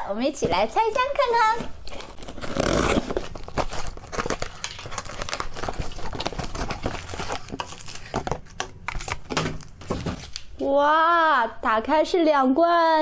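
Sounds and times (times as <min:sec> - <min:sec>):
cardboard crinkling and rustling: 0:00.4 - 0:10.5.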